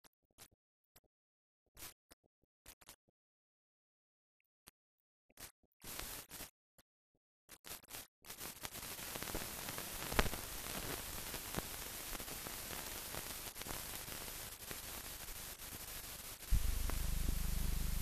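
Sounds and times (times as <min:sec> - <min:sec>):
clicks and crackles: 0:07.5 - 0:15.1, 0:15.9 - 0:18.0
film soundtrack hiss: 0:08.3 - 0:18.0
low steady hum: 0:16.5 - 0:18.0.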